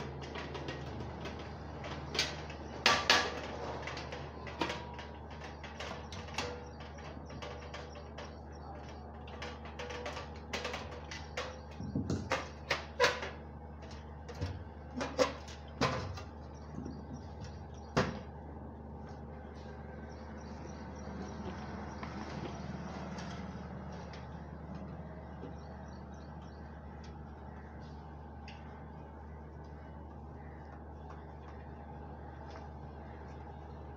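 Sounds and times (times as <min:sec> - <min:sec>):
metal clicks and knocks: 0:00.0 - 0:18.2
steady low hum: 0:00.0 - 0:33.9.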